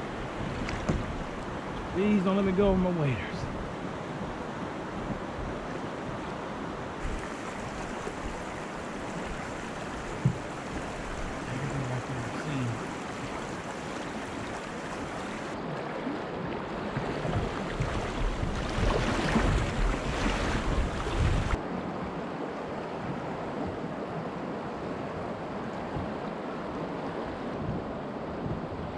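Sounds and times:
river water rushing and splashing: 0:00.0 - 0:28.9
person wading through water: 0:07.0 - 0:21.6.

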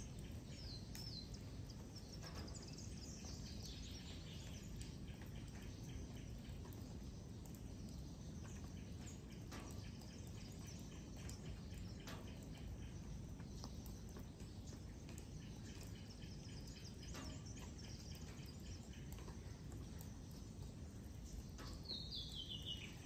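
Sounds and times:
bird chirps: 0:21.3 - 0:23.0.

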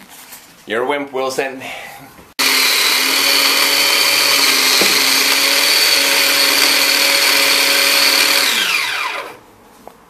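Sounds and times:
food processor running: 0:02.4 - 0:09.4.

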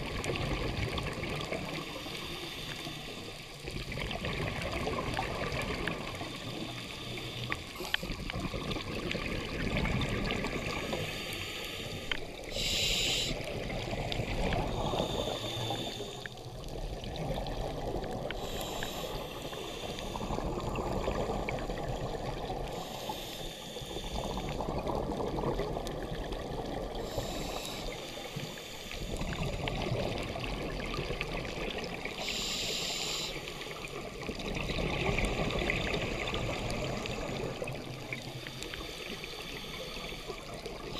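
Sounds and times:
underwater regulator breathing: 0:10.6 - 0:13.5, 0:14.5 - 0:16.5, 0:18.2 - 0:24.7, 0:26.9 - 0:29.4, 0:32.2 - 0:33.8, 0:38.1 - 0:40.8.

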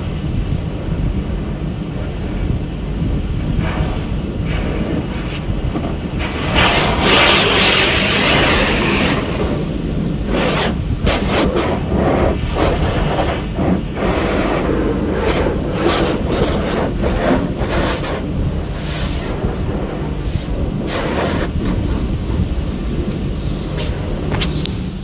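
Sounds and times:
car wash machinery rumble: 0:00.0 - 0:25.0
water spray hitting car: 0:03.5 - 0:23.1.

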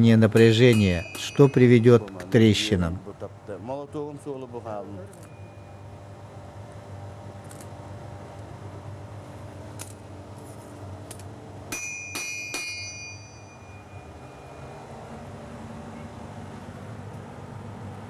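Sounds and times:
hammer striking blade on anvil: 0:00.3 - 0:02.3, 0:11.7 - 0:14.1
high metallic ring: 0:00.3 - 0:02.7, 0:05.2 - 0:06.1, 0:11.7 - 0:15.3.

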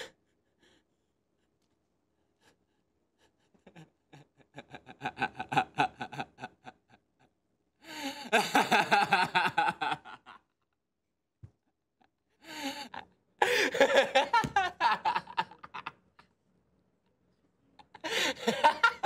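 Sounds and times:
man laughing: 0:03.5 - 0:07.0, 0:08.2 - 0:10.5, 0:12.6 - 0:16.3, 0:17.8 - 0:19.0.

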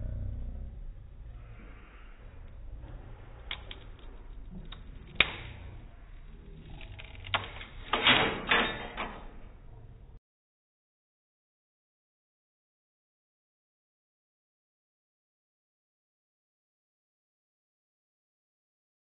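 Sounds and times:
wooden sticks cracking slowed down: 0:02.2 - 0:07.9.

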